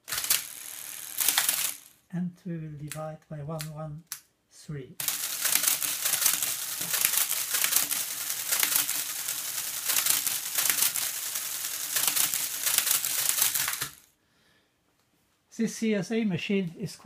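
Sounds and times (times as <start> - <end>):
calculator mechanism clattering: 0.0 - 1.9, 5.0 - 14.1
electric motor hum: 0.0 - 2.0, 5.0 - 14.1.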